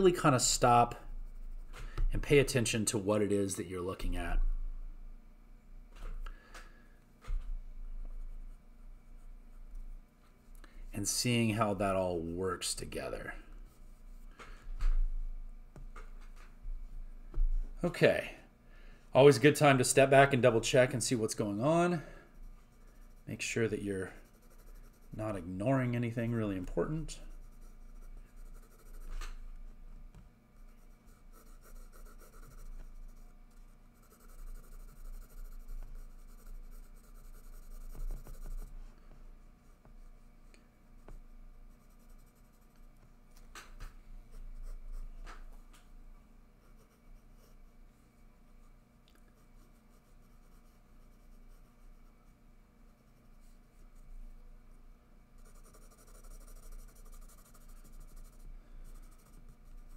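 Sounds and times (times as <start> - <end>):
steady low hum: 0.0 - 59.9
pencil scratching on paper: 22.4 - 29.2, 30.5 - 38.8, 41.0 - 42.9, 46.6 - 47.8, 49.3 - 54.0, 55.4 - 59.9.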